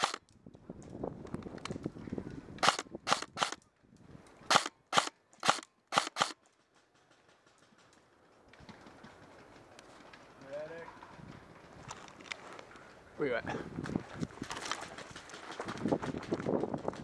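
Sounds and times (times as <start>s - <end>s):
airsoft rifle shots: 0.0s - 0.2s, 2.6s - 3.6s, 4.5s - 6.4s.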